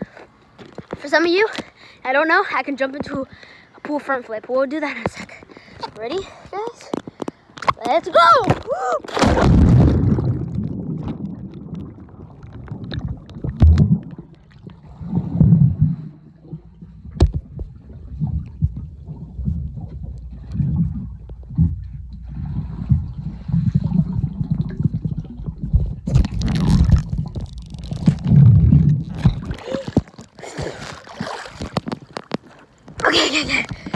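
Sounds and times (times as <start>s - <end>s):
underwater rumbling and bubbling: 8.5s - 33.9s
splash into pool: 9.0s - 11.5s.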